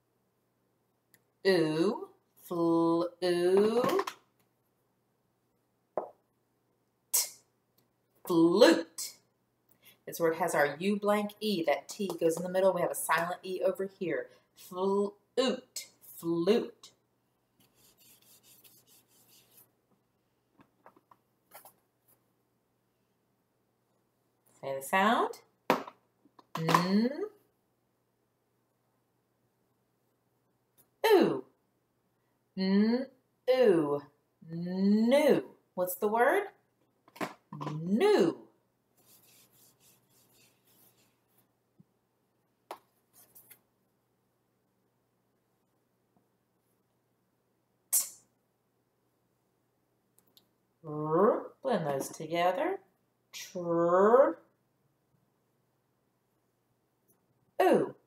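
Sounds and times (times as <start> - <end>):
whiteboard being wiped: 17.6 - 19.7, 39.0 - 41.5.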